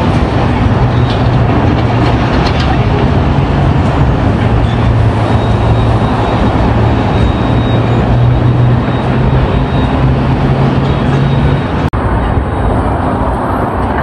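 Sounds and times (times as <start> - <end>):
cars passing on a road: 0.0 - 14.0
low engine hum: 0.0 - 14.0.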